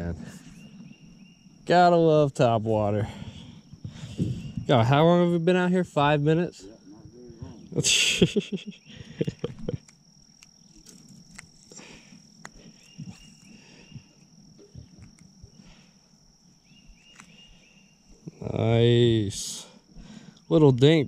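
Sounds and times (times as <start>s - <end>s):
chirping notes: 0.0s - 2.8s, 6.0s - 19.4s
insects trilling: 0.0s - 21.0s.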